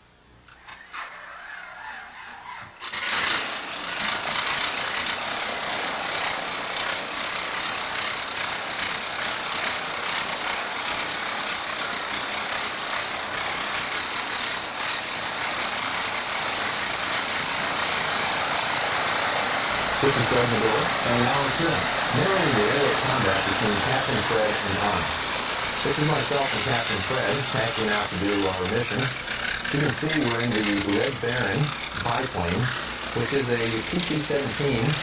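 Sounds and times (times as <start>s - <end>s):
propeller plane engine idling: 2.9s - 35.0s.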